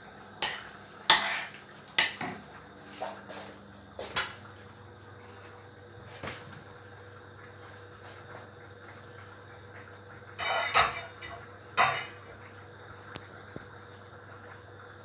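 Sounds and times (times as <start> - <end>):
metal pot lid clattering: 10.4 - 11.2.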